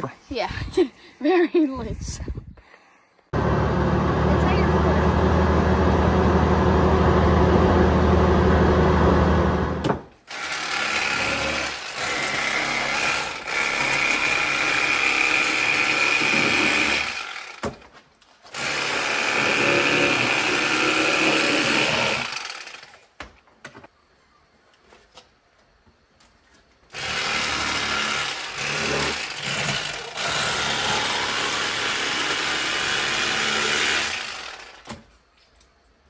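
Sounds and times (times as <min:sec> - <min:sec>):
vehicle engine and road noise: 0:03.4 - 0:09.8.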